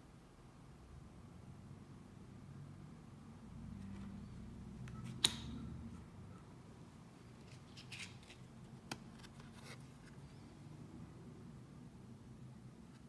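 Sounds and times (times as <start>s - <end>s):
cards clicking: 4.9s - 5.5s
cards rustling: 7.4s - 10.0s.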